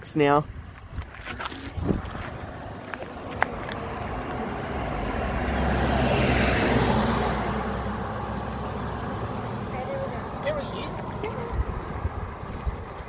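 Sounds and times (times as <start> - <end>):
car driving past: 2.4 - 12.7.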